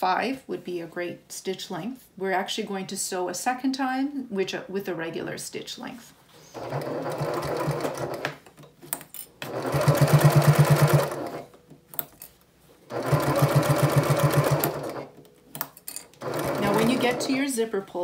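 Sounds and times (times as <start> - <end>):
sewing machine stitching: 6.5 - 8.3, 9.4 - 11.5, 12.9 - 15.2, 16.2 - 17.4.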